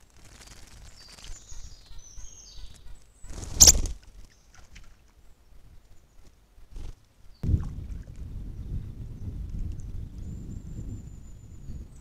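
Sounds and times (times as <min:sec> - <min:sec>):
high whistled birdsong: 0:00.4 - 0:04.6, 0:08.4 - 0:12.0.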